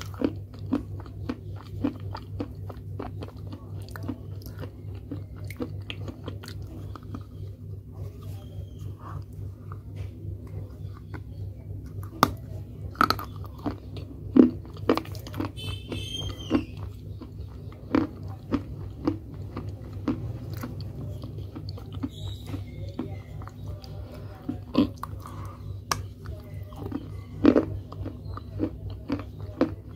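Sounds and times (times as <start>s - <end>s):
low hum: 0.0s - 29.9s.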